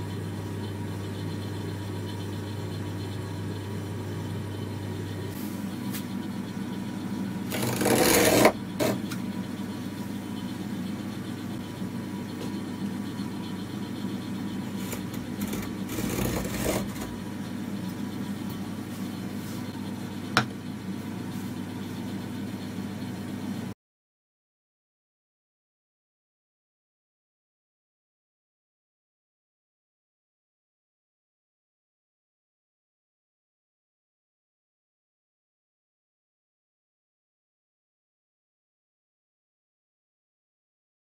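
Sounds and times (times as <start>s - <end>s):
steady low hum: 0.0s - 23.8s
knife scoring wood: 7.5s - 9.1s, 14.7s - 17.2s.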